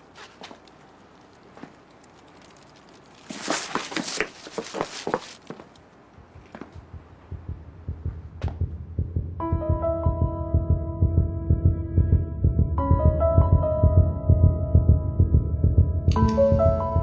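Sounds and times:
clothing rustling: 0.0 - 5.8
quick footsteps on pavement: 3.2 - 8.7
low even thumping: 6.1 - 17.0.

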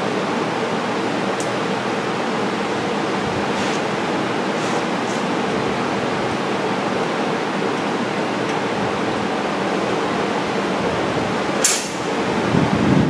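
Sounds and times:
steady rushing noise: 0.0 - 13.0
sharp click: 11.6 - 12.1.

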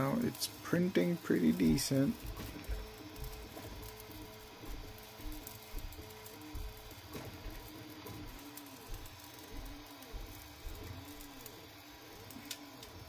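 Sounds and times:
stepper motors whining: 0.0 - 13.0.

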